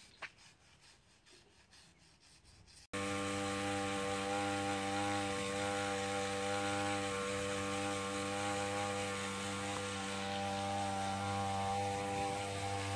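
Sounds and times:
hiss of mist spraying: 3.0 - 12.9
sprayer machine hum: 3.0 - 12.9.

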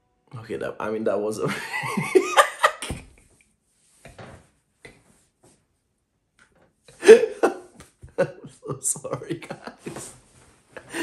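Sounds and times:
man laughing: 1.5 - 3.0, 6.9 - 10.2, 10.8 - 11.0.

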